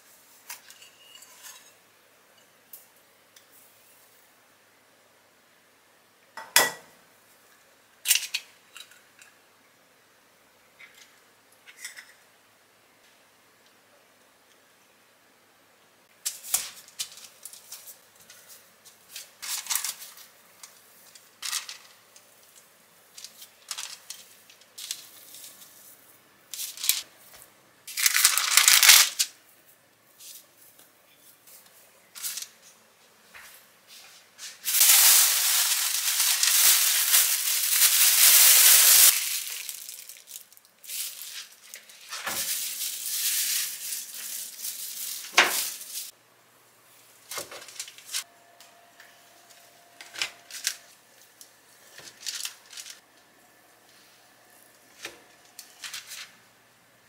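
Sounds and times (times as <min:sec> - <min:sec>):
parchment paper rustling: 0:16.3 - 0:26.0, 0:26.6 - 0:27.3, 0:31.4 - 0:32.7, 0:34.0 - 0:46.1, 0:47.3 - 0:48.2, 0:50.1 - 0:53.0, 0:54.9 - 0:56.4.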